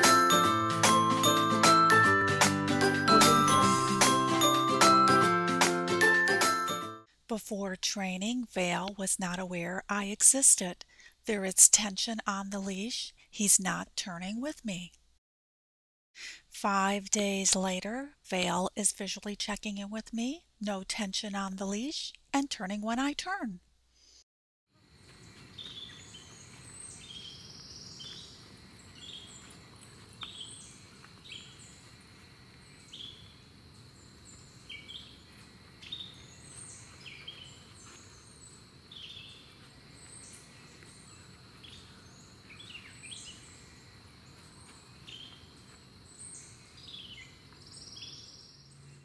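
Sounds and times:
birds chirping: 25.2s - 32.0s, 32.6s - 48.9s.

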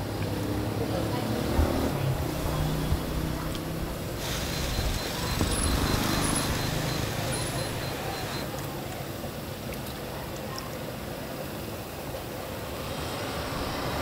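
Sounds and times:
faint indistinct voices: 0.0s - 13.7s
road traffic hum: 0.0s - 14.0s.

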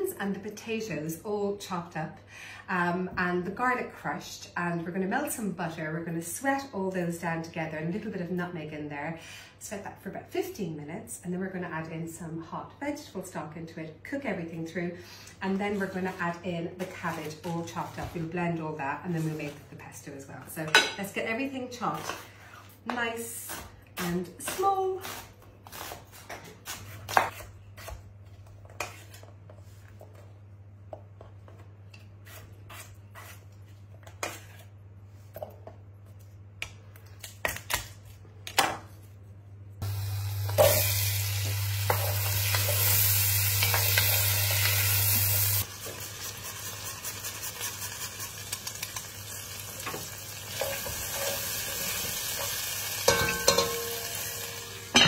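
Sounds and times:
vegetables sizzling in butter: 39.8s - 55.0s.

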